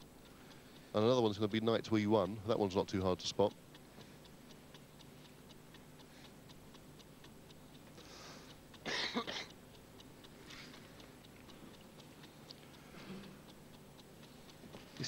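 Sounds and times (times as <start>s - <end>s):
clock ticking faintly: 0.0s - 15.0s
person coughing: 8.8s - 9.5s.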